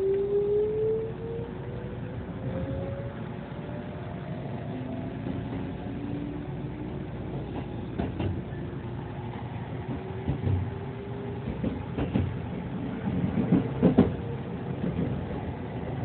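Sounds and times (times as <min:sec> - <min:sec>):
train wheels rumbling on rail: 0:00.0 - 0:16.0
wheels clacking on track: 0:07.4 - 0:08.6, 0:09.2 - 0:16.0.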